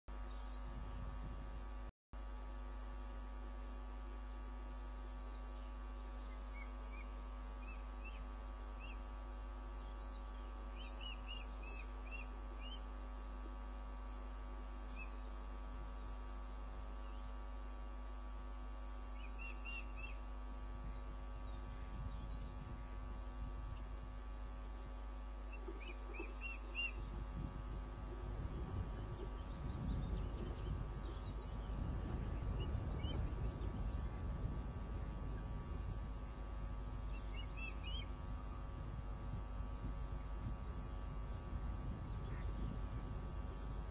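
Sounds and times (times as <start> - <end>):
electrical hum: 0.1 - 43.9
ospreys chirping: 19.2 - 20.2, 25.5 - 27.2, 37.1 - 38.1.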